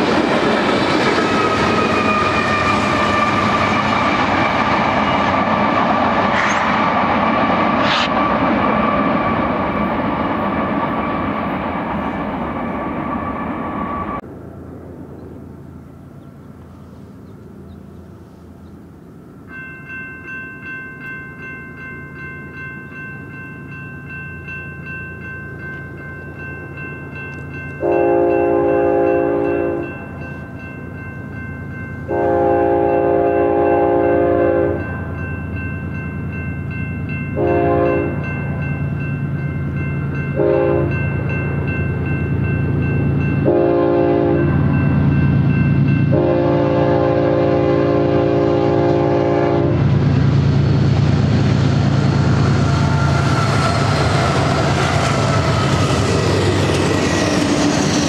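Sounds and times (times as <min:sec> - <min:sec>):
freight train noise: 0:00.0 - 0:58.0
train rumble: 0:00.0 - 0:58.0
crossing warning bell ringing: 0:18.8 - 0:50.4, 0:51.8 - 0:58.0
locomotive air horn blasts: 0:27.8 - 0:29.9, 0:32.1 - 0:34.8, 0:37.4 - 0:38.2, 0:40.4 - 0:41.0, 0:43.4 - 0:44.6, 0:46.1 - 0:49.9.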